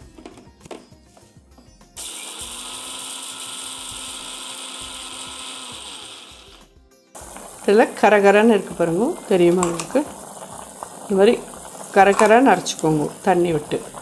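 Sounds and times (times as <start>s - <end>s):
mixer grinder running: 2.0s - 14.0s.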